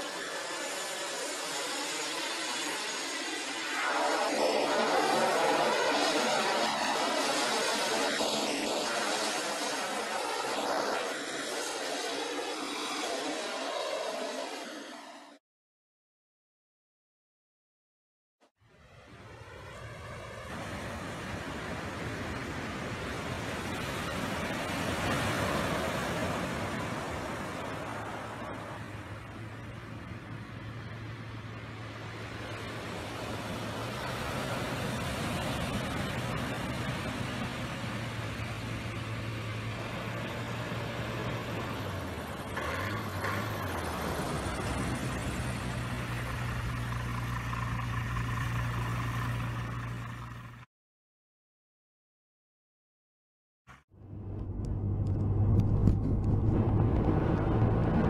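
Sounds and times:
surf washing up gravel beach: 0:20.6 - 0:28.5
propeller plane engine idling: 0:26.8 - 0:50.6.

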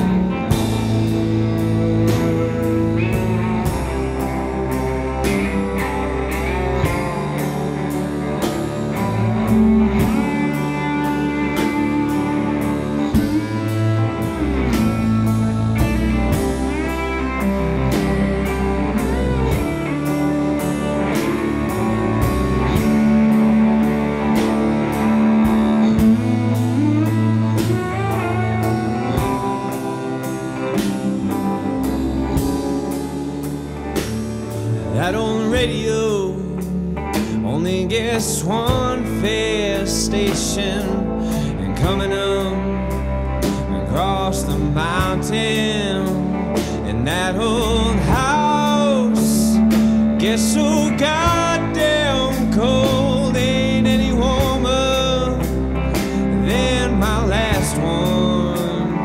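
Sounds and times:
country band playing: 0:00.0 - 0:59.0
steel guitar sliding: 0:00.0 - 0:59.0.

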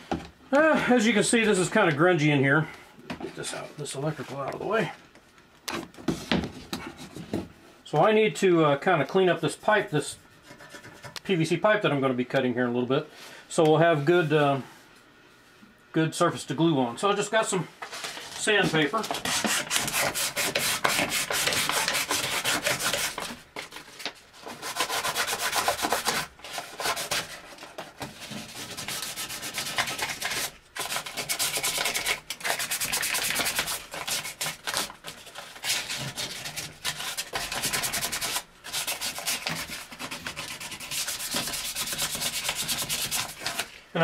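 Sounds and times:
sandpaper scratching pipe: 0:17.9 - 0:23.4, 0:24.4 - 0:43.7.

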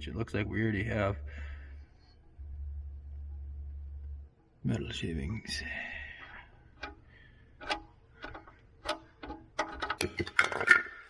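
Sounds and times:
wrench clicking: 0:06.7 - 0:10.8.

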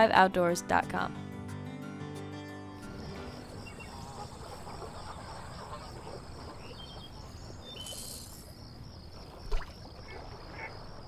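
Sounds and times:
crickets chirping: 0:02.7 - 0:11.0
faint bird chirps: 0:02.9 - 0:10.8.

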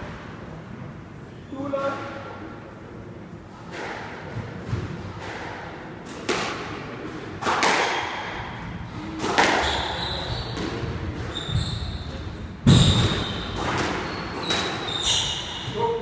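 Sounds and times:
squash ball hitting walls: 0:03.6 - 0:15.9
shoes squeaking on floor: 0:09.5 - 0:15.9.

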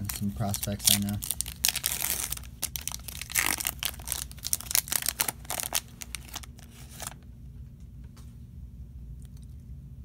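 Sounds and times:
foil wrapper crinkling and tearing: 0:00.0 - 0:07.2.

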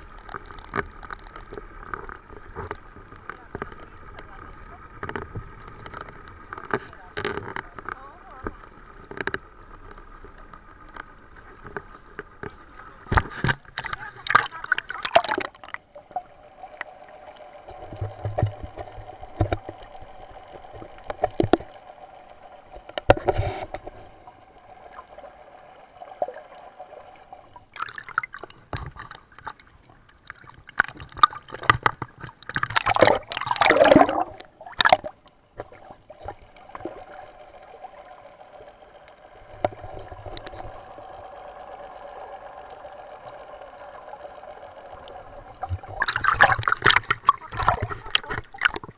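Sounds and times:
faint steady hum: 0:00.0 - 0:48.9
water gurgling and bubbling: 0:13.1 - 0:48.9.

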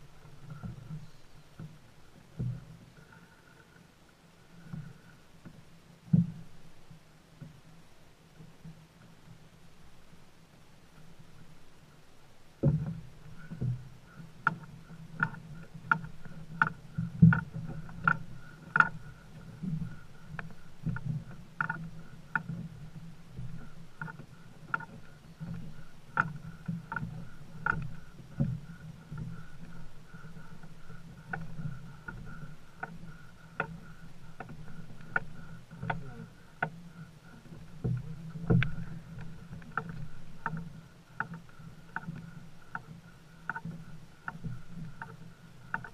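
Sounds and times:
low steady hum: 0:00.0 - 0:45.9
canoe gear knocking: 0:12.6 - 0:45.9.

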